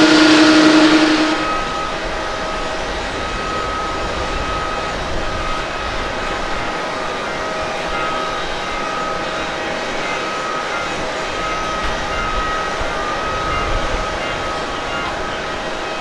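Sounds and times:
jet engine whine: 0.0 - 16.0.

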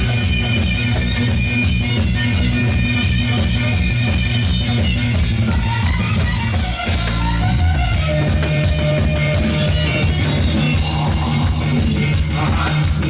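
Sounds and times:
driving drum beat: 0.0 - 13.0
guitar: 0.0 - 13.0
loud amplified music: 0.0 - 13.0.

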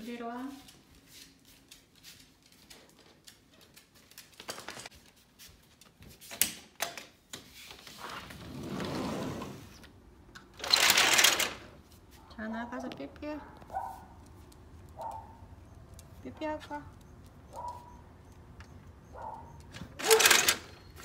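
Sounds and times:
dog footsteps on tile floor: 0.0 - 8.0, 11.7 - 20.0
sliding glass door rolling open: 7.9 - 11.8.

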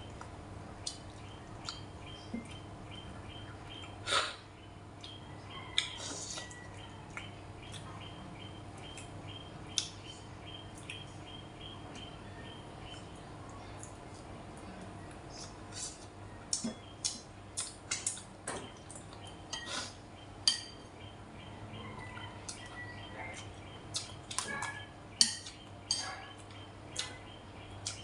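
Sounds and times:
steady low hum: 0.0 - 28.0
chopsticks clinking on ceramic bowl: 20.4 - 20.9, 24.4 - 26.4.

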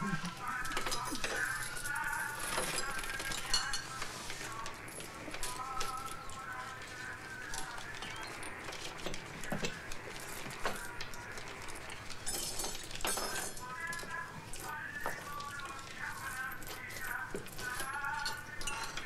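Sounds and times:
indistinct high voices: 0.0 - 2.1
crockery and cutlery clinking: 0.0 - 6.4, 7.5 - 19.0.

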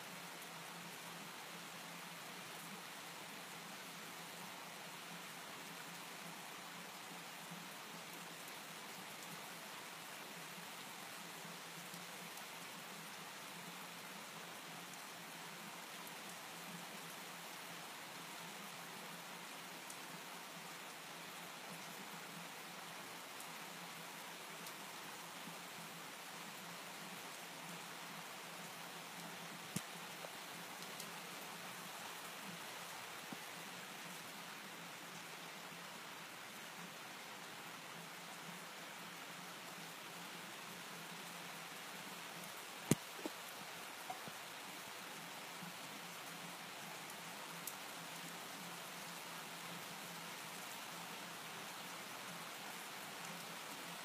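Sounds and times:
steady rain hissing: 0.0 - 54.0.

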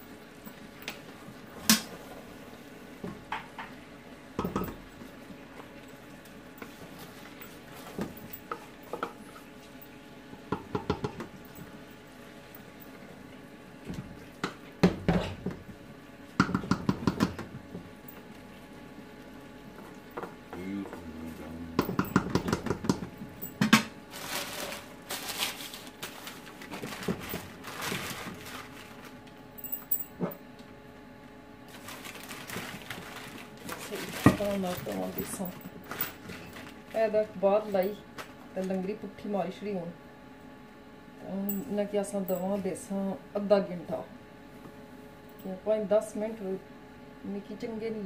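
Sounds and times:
steady hum: 0.0 - 48.0
newspaper crinkling: 24.1 - 29.2, 31.7 - 37.0.

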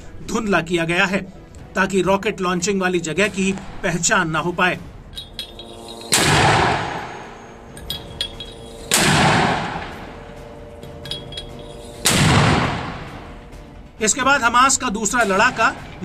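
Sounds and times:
mortar firing booms: 12.1 - 13.0.

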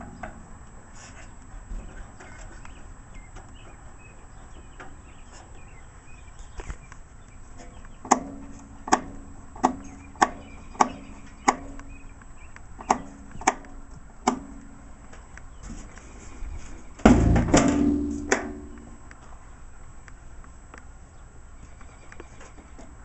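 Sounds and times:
knocks on metal with ringing: 17.1 - 18.8.

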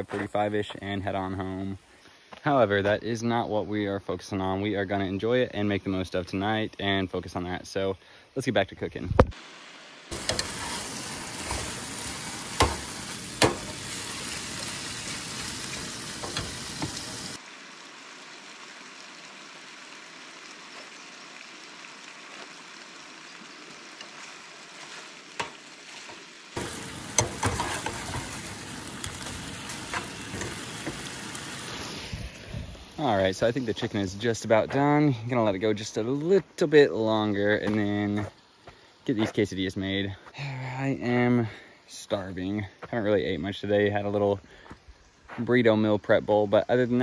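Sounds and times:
chicken sizzling in skillet: 9.4 - 34.2
spatula scraping pan: 10.1 - 17.4, 24.8 - 31.1.

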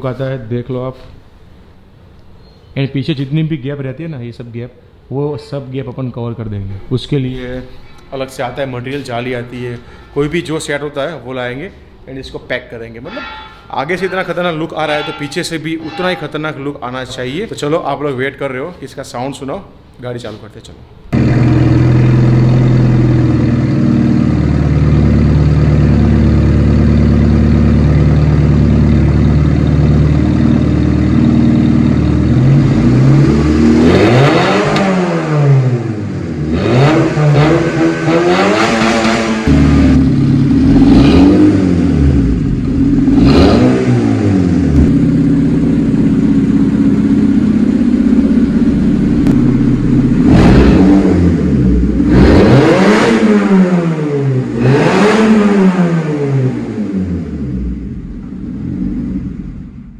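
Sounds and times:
car engine idling: 21.2 - 33.8, 39.4 - 41.0, 44.4 - 52.2
car engine revving: 21.2 - 59.8.

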